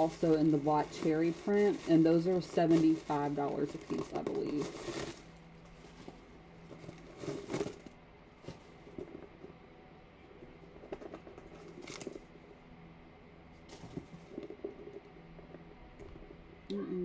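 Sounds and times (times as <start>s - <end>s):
paper and leather rustling: 0.0s - 9.5s, 10.6s - 12.4s.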